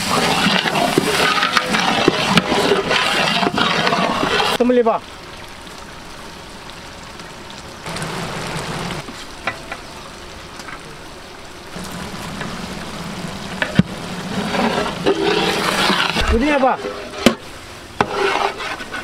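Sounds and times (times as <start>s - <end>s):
sauce sizzling in a pot: 0.0s - 6.7s, 11.4s - 19.0s.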